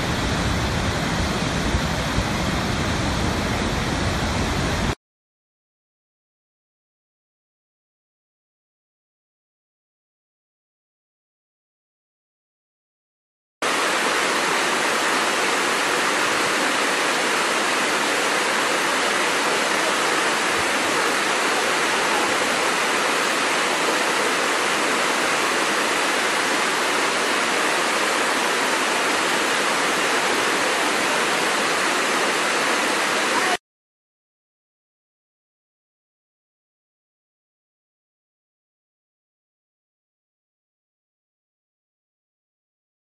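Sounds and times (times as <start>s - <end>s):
waterfall rushing: 0.0s - 5.0s, 13.6s - 33.6s.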